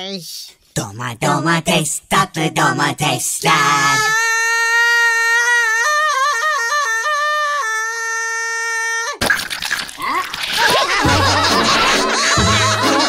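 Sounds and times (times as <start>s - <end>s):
tomato splattering: 9.2s - 11.3s
cartoon giggles: 10.5s - 13.0s.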